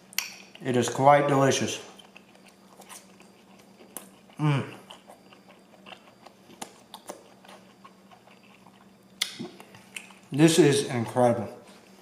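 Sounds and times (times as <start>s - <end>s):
chewing food: 1.8s - 12.0s
person humming mmm: 4.4s - 4.9s.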